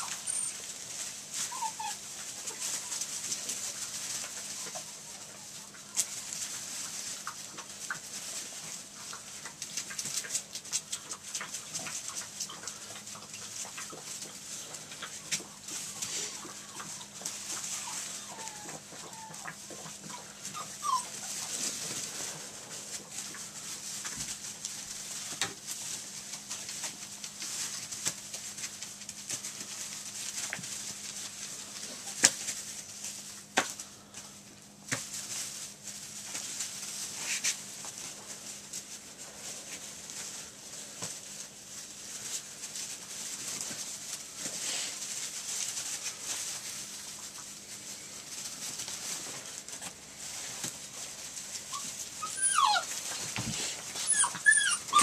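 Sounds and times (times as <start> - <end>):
puppy yips: 0.0 - 0.6, 1.5 - 2.6, 17.8 - 21.4, 51.7 - 52.9, 54.0 - 55.0
puppies scuffling in wood shavings: 0.0 - 55.0.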